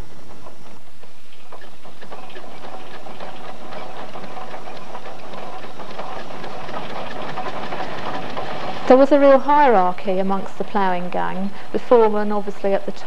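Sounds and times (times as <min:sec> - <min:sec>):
steam engine mechanical clatter: 0:00.0 - 0:13.0.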